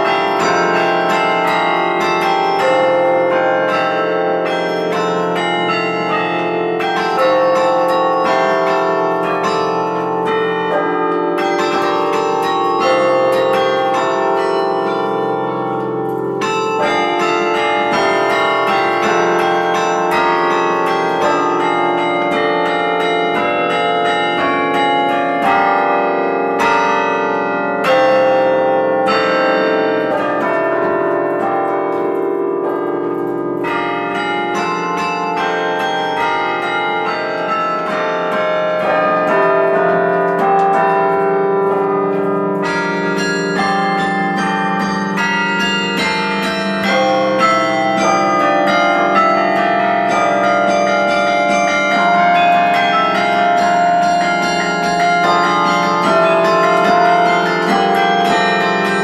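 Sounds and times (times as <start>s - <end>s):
carillon bells playing a tune: 0.0s - 59.0s.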